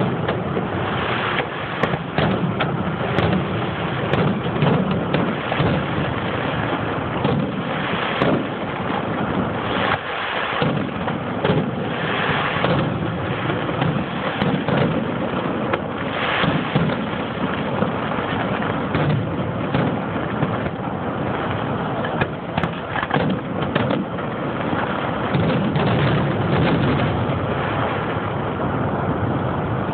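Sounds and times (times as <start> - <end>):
firework shells bursting: 0.0 - 27.2
fireworks crackling: 0.0 - 28.4.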